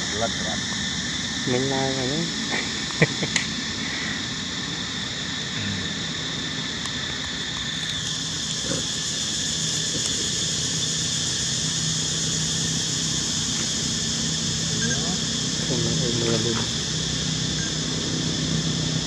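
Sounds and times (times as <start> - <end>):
high-pitched whine: 0.0 - 19.0
low engine-like hum: 0.0 - 19.0.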